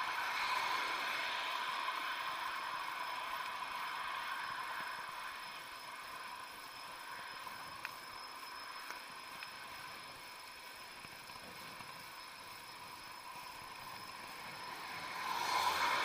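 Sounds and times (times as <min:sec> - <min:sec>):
bicycle tyre and wind noise: 0:00.0 - 0:16.0
faint steady tones: 0:00.0 - 0:16.0
small clicks: 0:07.7 - 0:08.0, 0:08.8 - 0:12.2.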